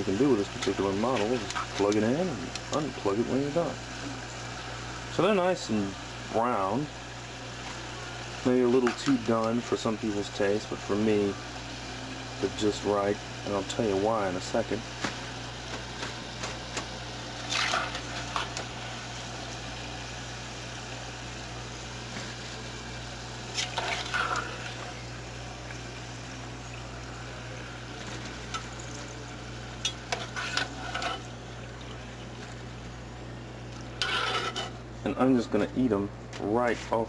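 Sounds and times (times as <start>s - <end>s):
hot oil sizzling in deep fryer: 0.0s - 35.7s
spatula scraping and knocking: 30.1s - 31.2s, 34.0s - 34.8s.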